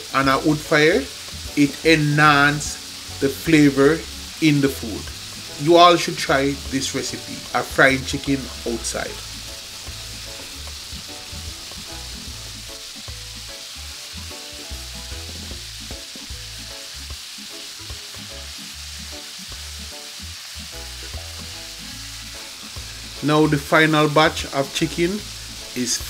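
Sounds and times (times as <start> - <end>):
chicken sizzling in hot oil: 0.0 - 26.0.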